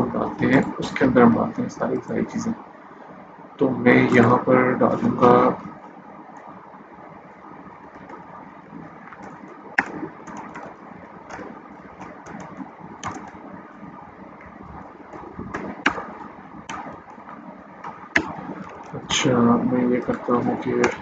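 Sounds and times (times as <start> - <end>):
faint background hum: 0.0 - 21.0
keyboard and mouse clicks: 7.8 - 13.5, 14.4 - 19.0, 20.1 - 21.0.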